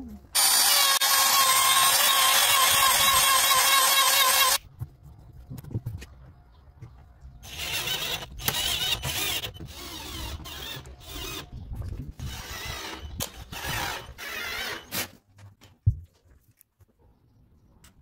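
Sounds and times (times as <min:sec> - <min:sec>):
cordless drill driving screws: 0:00.4 - 0:04.6, 0:07.4 - 0:11.5, 0:12.2 - 0:15.1.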